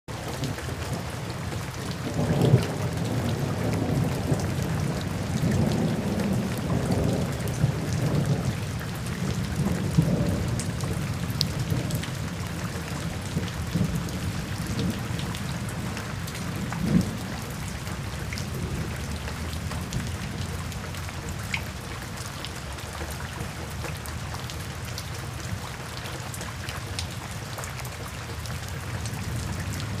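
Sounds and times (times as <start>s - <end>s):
heavy rain: 0.1s - 30.0s
thunder rumbling: 1.7s - 21.0s.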